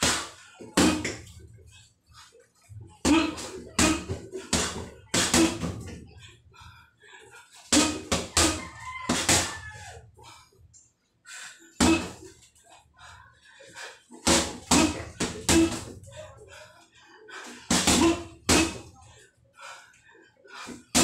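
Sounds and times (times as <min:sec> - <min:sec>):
rooster crowing: 0:08.3 - 0:10.1.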